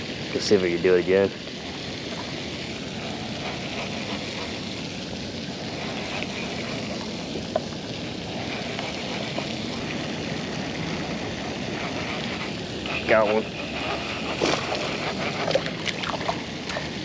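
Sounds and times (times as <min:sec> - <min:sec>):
fountain splashing: 0:00.0 - 0:17.0.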